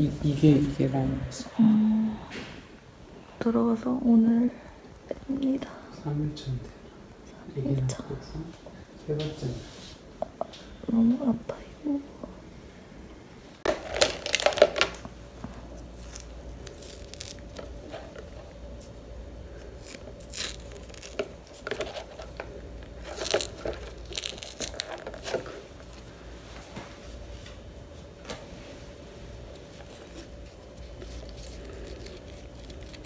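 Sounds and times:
plastic tubing crinkling: 13.6 - 26.1, 29.5 - 33.0
tape tearing and peeling: 13.7 - 15.0, 16.0 - 18.2, 19.6 - 25.6, 29.8 - 33.0.

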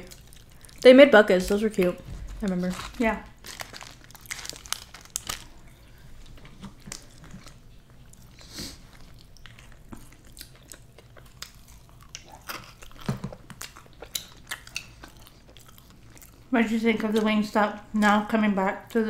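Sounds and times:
person chewing chicken wings: 3.4 - 16.5.

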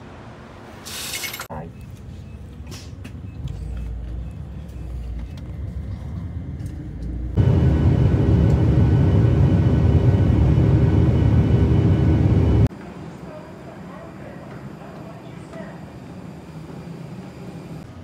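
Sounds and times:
airliner cabin drone: 3.2 - 18.0.

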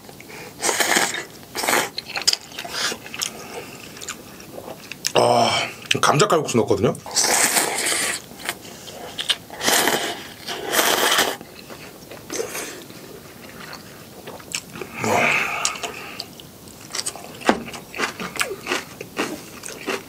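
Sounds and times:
person slurping noodles: 0.6 - 2.0, 7.1 - 11.4, 13.6 - 16.3
chewing with smacking clicks: 2.0 - 5.2, 15.6 - 20.0.

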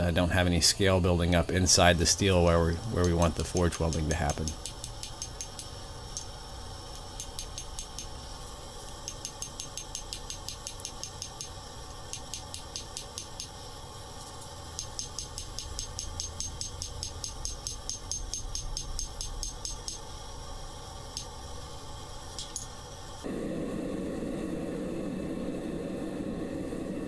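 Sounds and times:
hammer striking steel on anvil: 14.8 - 20.1, 22.4 - 22.8.

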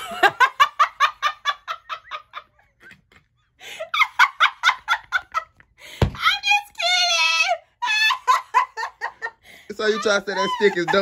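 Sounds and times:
woman laughing hard: 0.0 - 2.9, 3.6 - 5.6, 7.8 - 11.0.

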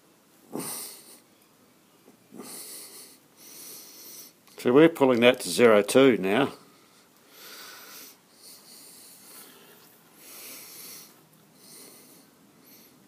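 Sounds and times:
soft breathing: 2.3 - 4.6, 6.5 - 13.0.

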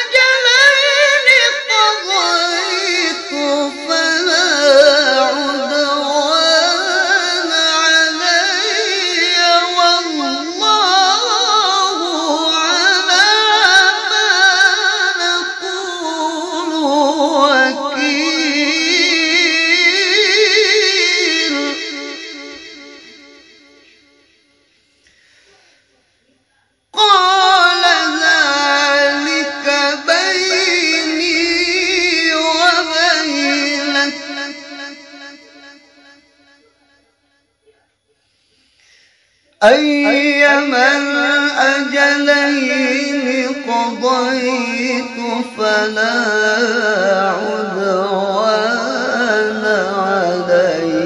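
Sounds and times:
man chanting melodically: 0.0 - 24.2, 26.9 - 37.9, 39.5 - 51.0.

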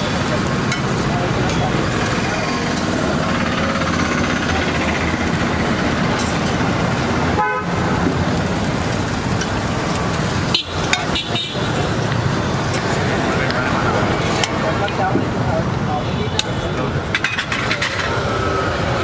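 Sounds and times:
street traffic: 0.0 - 19.0
metal spatulas on griddle: 0.6 - 2.9, 6.2 - 6.6, 17.1 - 18.3
vehicle horn tooting: 7.4 - 7.7.

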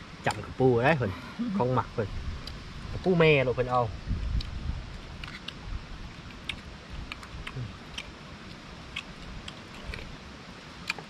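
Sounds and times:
steady background hiss: 0.0 - 11.0
chewing: 4.4 - 10.2.

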